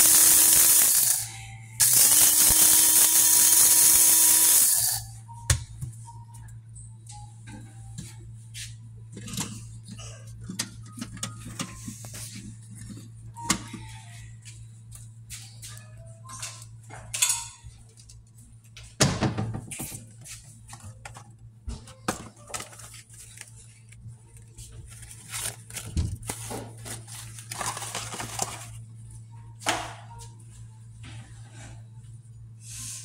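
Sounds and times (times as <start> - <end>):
objects clicking and clunking: 9.1 - 13.9.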